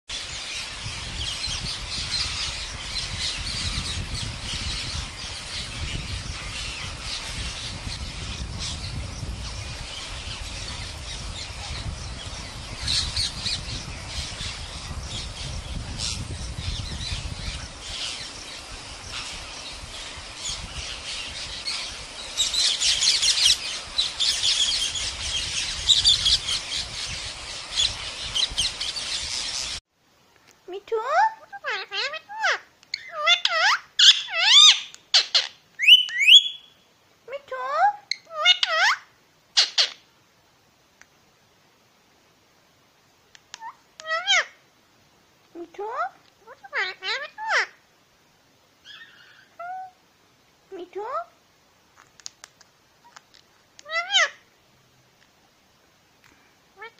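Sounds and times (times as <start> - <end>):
parrot squawking: 31.1 - 36.7, 37.6 - 40.0, 43.6 - 44.6, 45.9 - 47.8, 48.8 - 50.0, 53.8 - 54.4.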